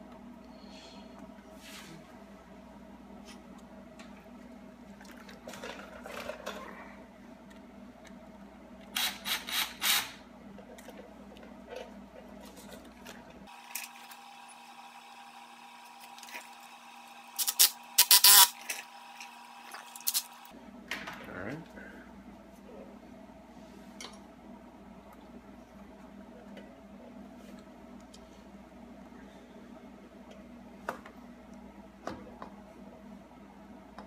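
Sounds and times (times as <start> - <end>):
hose and clamps scraping and clicking: 17.4 - 18.8.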